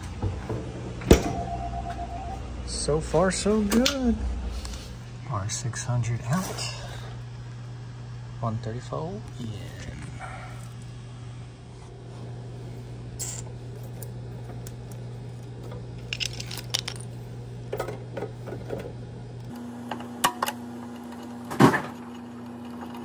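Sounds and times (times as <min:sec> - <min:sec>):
low hum: 0:00.0 - 0:17.6.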